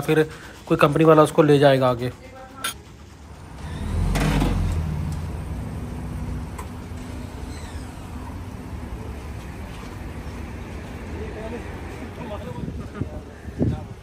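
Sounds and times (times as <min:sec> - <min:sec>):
pickup engine revving: 0:03.4 - 0:08.9.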